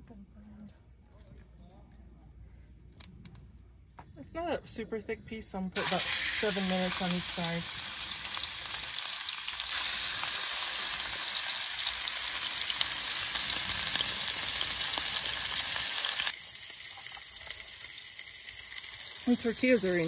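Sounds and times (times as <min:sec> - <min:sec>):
chicken sizzling in hot oil: 0:05.8 - 0:20.0.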